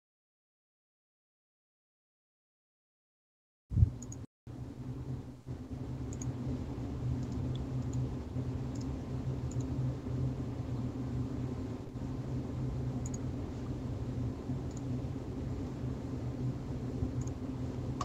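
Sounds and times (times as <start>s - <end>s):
steady low hum: 3.7s - 18.0s
computer mouse clicks: 6.1s - 6.3s, 7.2s - 8.0s, 8.7s - 8.9s, 9.5s - 9.7s, 13.0s - 13.2s, 14.7s - 14.9s, 17.2s - 17.4s.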